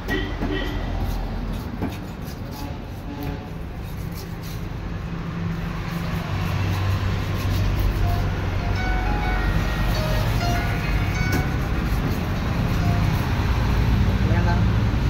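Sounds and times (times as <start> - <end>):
street traffic rumble: 0.0 - 15.0
knife cutting on wooden block: 0.5 - 4.8, 5.6 - 8.3, 11.2 - 13.4.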